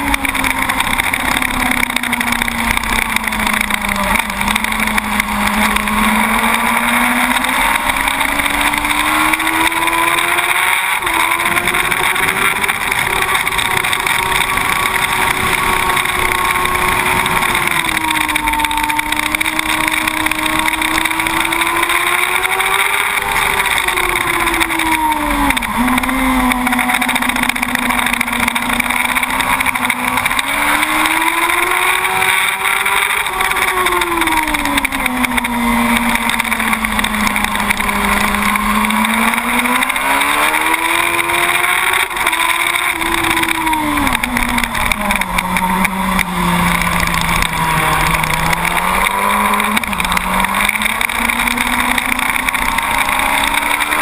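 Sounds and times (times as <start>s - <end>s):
motorcycle engine running hard: 0.0s - 54.0s.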